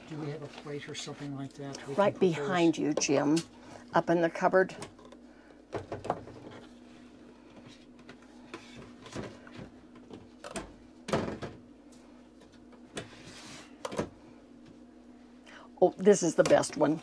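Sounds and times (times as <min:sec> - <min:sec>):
faint steady hum: 0:00.0 - 0:17.0.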